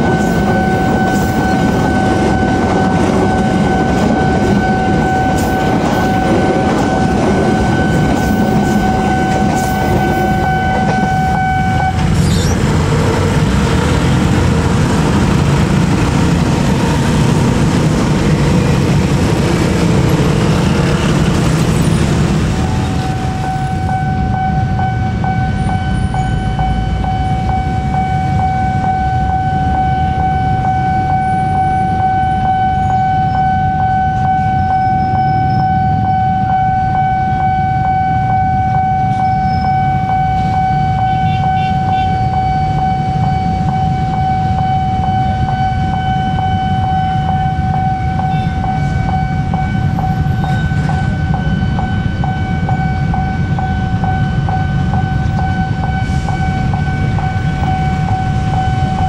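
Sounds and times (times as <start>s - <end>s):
train rumbling: 0.0s - 59.0s
level crossing bell ringing: 35.8s - 59.0s.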